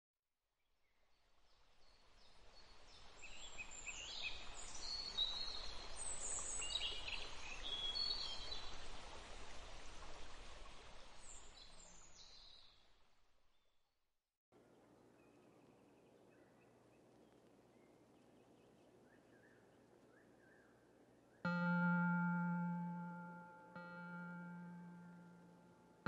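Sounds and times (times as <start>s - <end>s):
low outdoor ambience rush: 14.6s - 26.0s.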